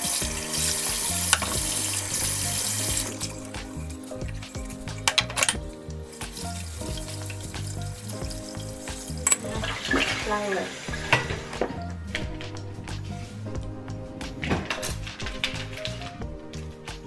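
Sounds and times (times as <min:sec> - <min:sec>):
tap water running: 0:00.0 - 0:12.6
glass and dishes clinking: 0:04.6 - 0:05.6, 0:09.2 - 0:10.1.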